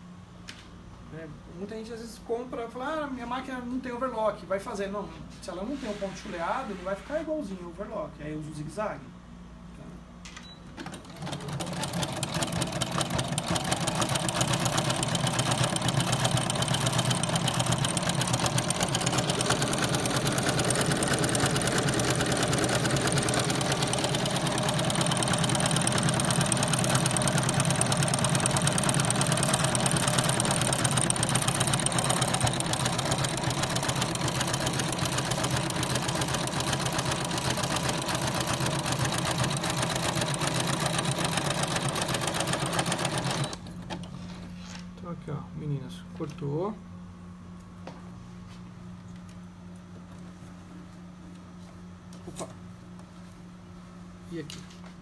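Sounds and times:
sewing machine stitching: 0:10.8 - 0:44.2.

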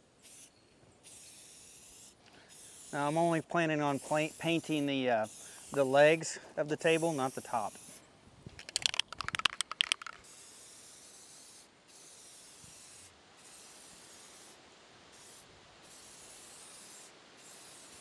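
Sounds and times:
spray paint hissing: 0:00.2 - 0:08.0, 0:08.6 - 0:18.0
spray can rattling: 0:06.8 - 0:13.0.

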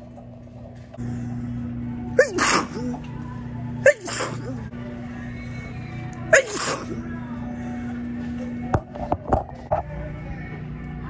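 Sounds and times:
steady low hum: 0:00.0 - 0:11.0
woman sneezing: 0:02.2 - 0:03.0, 0:03.8 - 0:04.6, 0:06.3 - 0:07.0.

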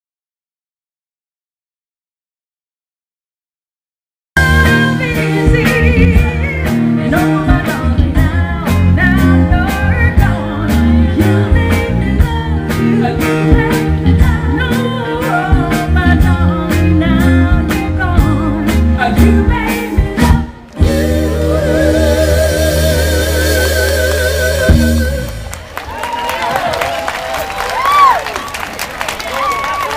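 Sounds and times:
women singing: 0:04.4 - 0:25.3
live band playing: 0:04.4 - 0:29.9
heavy bass line: 0:15.5 - 0:25.7
steady drum beat: 0:15.5 - 0:25.7.

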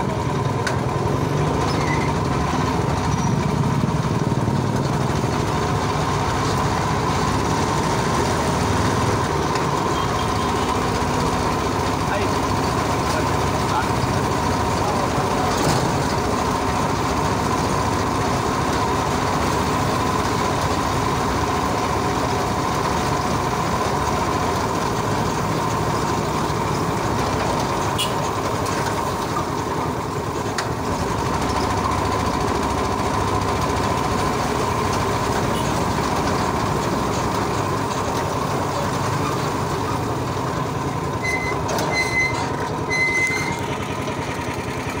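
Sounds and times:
road rumble: 0:00.0 - 0:45.0
tricycle running hum and whine: 0:00.0 - 0:45.0
horn beeps: 0:09.9 - 0:10.7, 0:28.0 - 0:28.3, 0:41.2 - 0:43.6.

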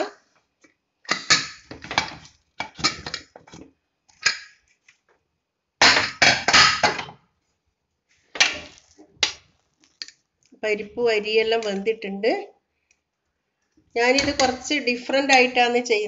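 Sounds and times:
metal lid clanking and scraping: 0:14.1 - 0:14.7.

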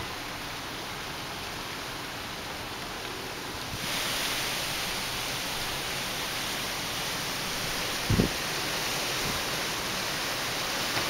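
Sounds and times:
gusty wind on microphone: 0:03.6 - 0:06.1, 0:07.5 - 0:08.6.

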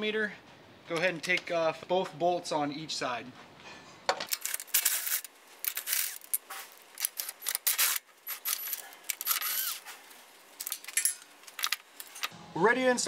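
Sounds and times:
ratchet clicking and rattling: 0:04.3 - 0:09.8.

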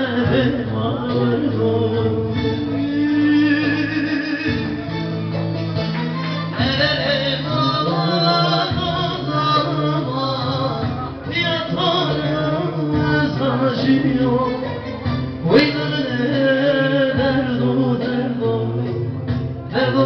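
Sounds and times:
plucked lute folk music: 0:00.0 - 0:20.0.

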